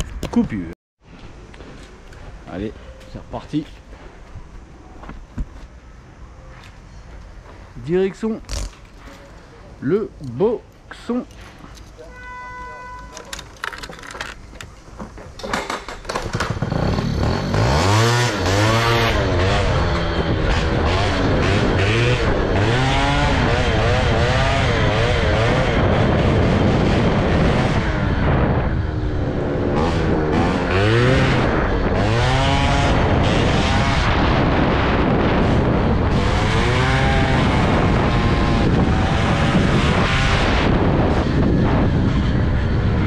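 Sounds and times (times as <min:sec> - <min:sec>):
wind and road noise: 0:00.0 - 0:43.0
two-stroke moped engine revving: 0:16.1 - 0:43.0.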